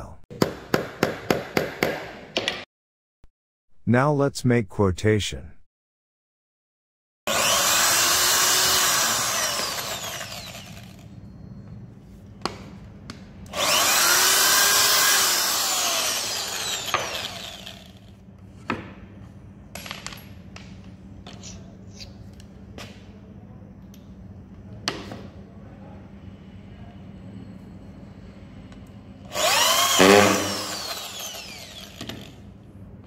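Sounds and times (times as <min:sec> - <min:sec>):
electric drill boring into wood: 0:07.3 - 0:11.0, 0:13.5 - 0:18.1, 0:29.3 - 0:32.4.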